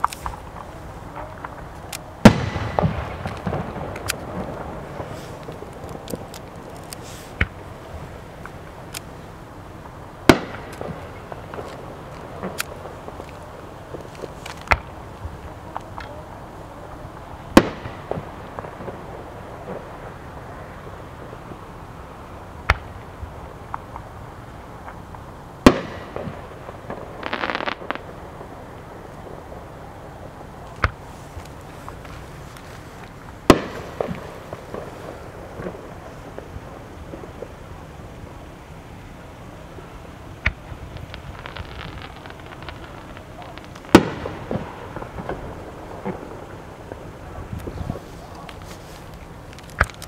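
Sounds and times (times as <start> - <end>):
firework bangs: 0.0 - 50.0
faint firework pops: 10.3 - 16.2, 17.6 - 19.0, 24.8 - 28.1, 33.0 - 36.5, 40.4 - 50.0.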